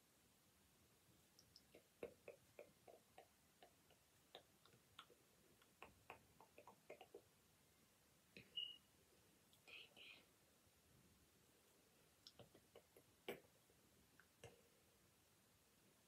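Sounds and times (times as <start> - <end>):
makeup brush ticks and taps: 1.4 - 7.3, 12.2 - 13.5.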